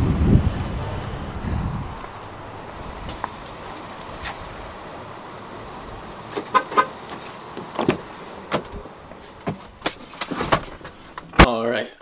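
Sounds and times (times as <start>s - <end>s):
car door clicks: 6.3s - 11.5s
car horn chirps: 6.4s - 7.0s.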